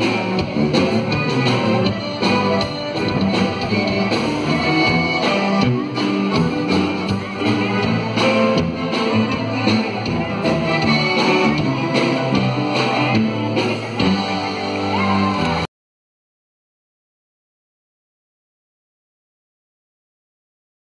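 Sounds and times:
steady drum beat: 0:00.0 - 0:14.5
live band music: 0:00.0 - 0:15.7.

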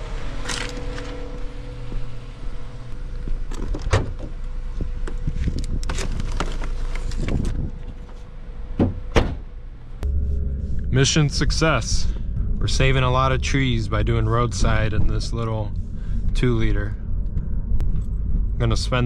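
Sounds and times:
car trunk lid thumping shut: 0:08.8 - 0:09.4.

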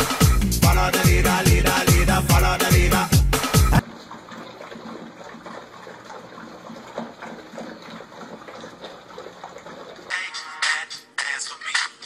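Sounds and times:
puppies lapping and chewing: 0:03.8 - 0:10.6.

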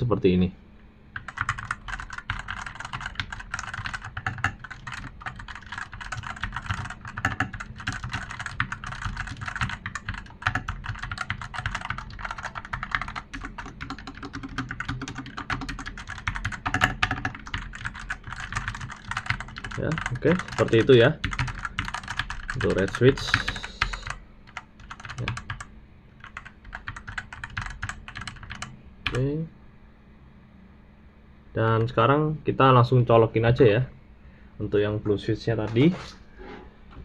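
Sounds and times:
mechanical keyboard typing: 0:01.2 - 0:29.2.

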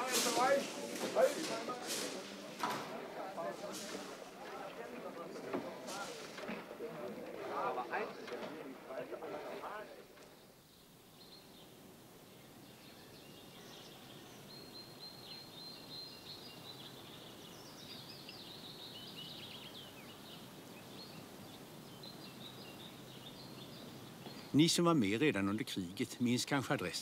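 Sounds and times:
faint steady outdoor hiss: 0:00.0 - 0:27.0
songbirds chirping and singing: 0:00.0 - 0:27.0.

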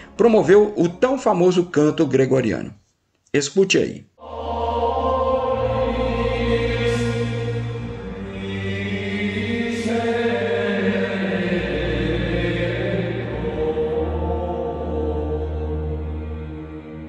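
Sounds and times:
choir chanting long notes: 0:04.2 - 0:17.0
steady low drone: 0:04.2 - 0:17.0.

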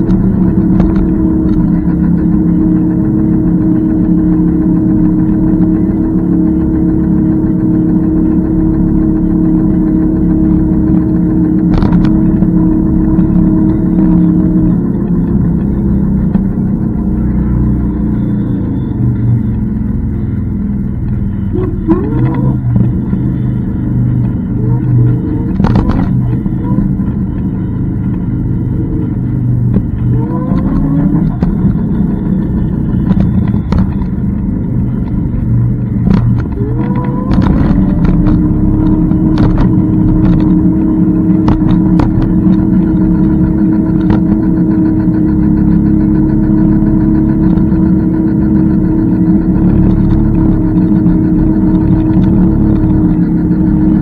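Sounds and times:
electric motor whine: 0:00.0 - 0:54.0
wind and road rumble: 0:00.0 - 0:54.0.

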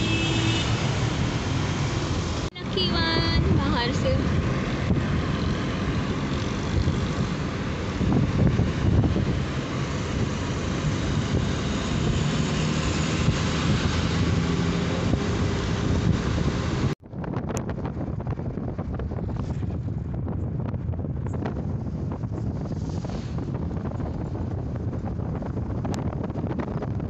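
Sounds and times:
traffic passing close by: 0:00.0 - 0:17.0
car road noise and engine hum: 0:00.0 - 0:27.0.

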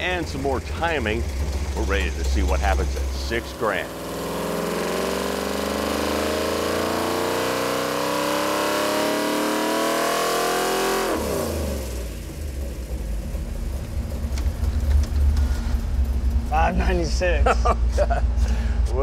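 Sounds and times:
engine idling: 0:00.0 - 0:07.0, 0:11.0 - 0:19.0
engine revving at full throttle: 0:00.0 - 0:13.0.

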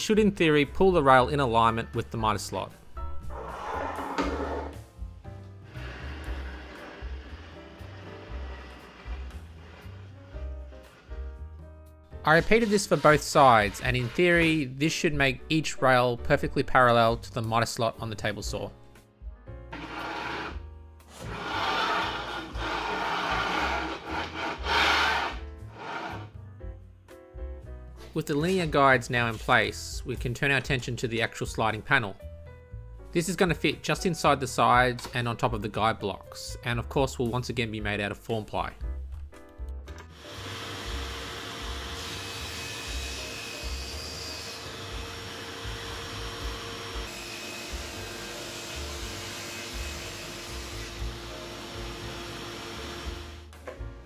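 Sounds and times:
rough rubbing scraping: 0:03.2 - 0:04.9, 0:05.7 - 0:11.3, 0:12.3 - 0:14.5, 0:19.8 - 0:26.4
power tool droning: 0:05.6 - 0:11.3, 0:19.7 - 0:26.3, 0:40.1 - 0:53.5.

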